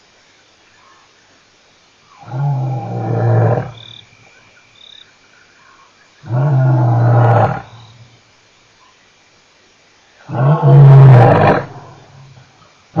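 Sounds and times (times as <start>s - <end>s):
lion roaring: 10.2s - 12.0s.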